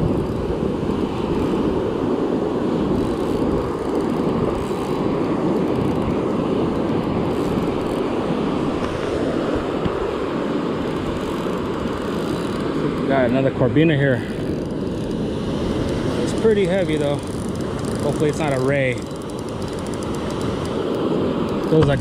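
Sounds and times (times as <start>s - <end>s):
surf breaking and washing on sand: 0.0s - 22.0s.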